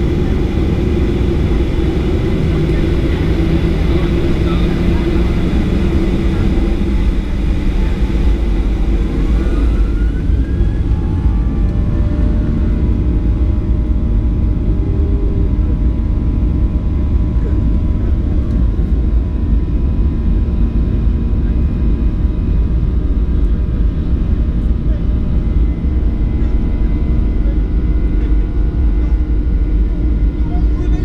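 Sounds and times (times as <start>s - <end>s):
faint rising whine: 0.0s - 17.5s
jet engines rumbling: 0.0s - 31.0s.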